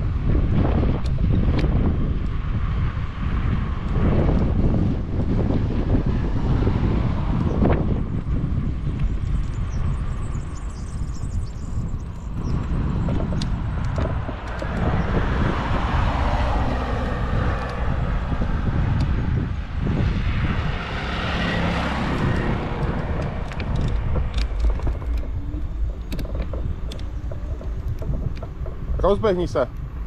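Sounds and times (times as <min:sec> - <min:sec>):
road rumble: 0:00.0 - 0:30.0
wind hiss: 0:00.0 - 0:30.0
sharp ticks: 0:10.5 - 0:15.1, 0:22.1 - 0:29.9.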